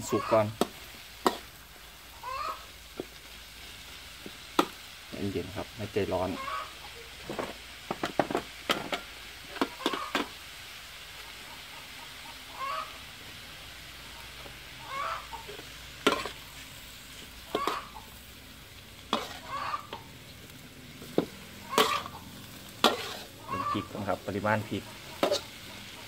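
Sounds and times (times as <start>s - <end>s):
hen clucking: 0.0s - 0.6s, 2.1s - 2.7s, 6.1s - 7.2s, 9.6s - 10.3s, 11.2s - 13.2s, 14.0s - 16.3s, 17.4s - 18.2s, 19.2s - 20.2s, 21.6s - 26.0s
vegetables sizzling in a wok: 0.0s - 26.0s
metal spatula clanking on wok: 16.0s - 16.4s, 17.5s - 18.0s, 19.1s - 20.0s, 21.2s - 22.2s, 22.8s - 23.7s, 25.2s - 25.5s.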